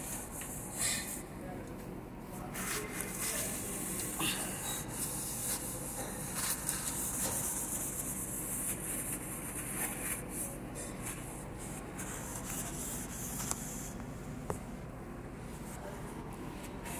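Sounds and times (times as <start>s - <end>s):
tissue rubbing a surface: 2.4s - 4.2s, 4.8s - 14.0s.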